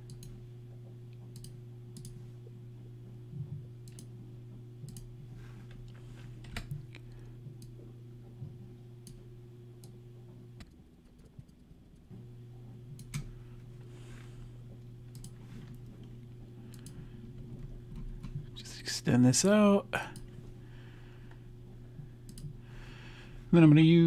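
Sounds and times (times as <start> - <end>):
computer mouse clicking: 0.0 - 0.4, 1.2 - 2.2, 3.8 - 4.1, 4.8 - 5.1, 13.0 - 13.3, 15.1 - 15.9, 16.6 - 17.0, 22.3 - 22.6
low hum: 0.0 - 24.0.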